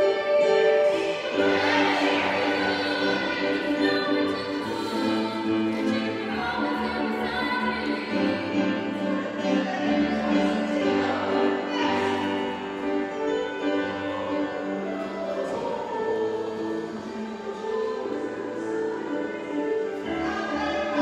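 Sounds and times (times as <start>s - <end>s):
orchestral backing: 0.0s - 21.0s
voices singing together: 0.8s - 12.5s.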